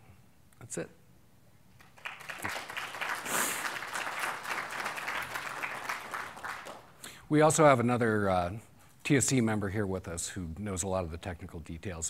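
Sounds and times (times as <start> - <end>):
audience applauding: 1.8 - 7.0.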